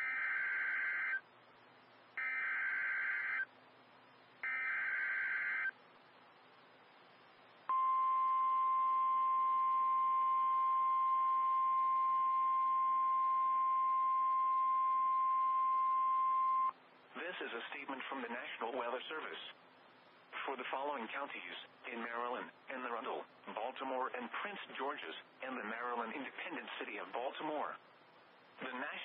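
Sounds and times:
steady warning alarm tone: 0.0 - 1.2, 2.2 - 3.5, 4.4 - 5.7, 7.7 - 16.7.

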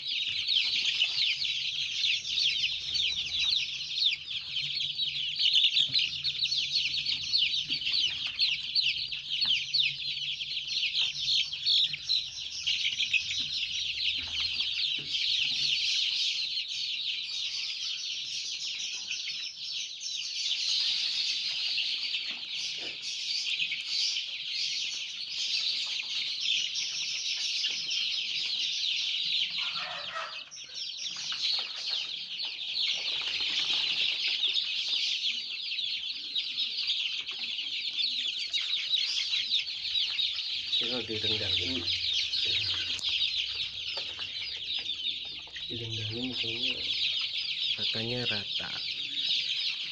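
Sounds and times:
chicks peeping: 0.0 - 49.9.

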